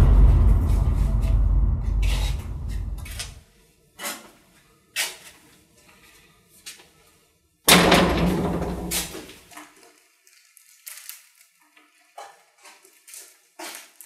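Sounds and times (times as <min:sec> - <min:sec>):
deep boom: 0:00.0 - 0:03.4
knocks and rustles: 0:07.7 - 0:09.4.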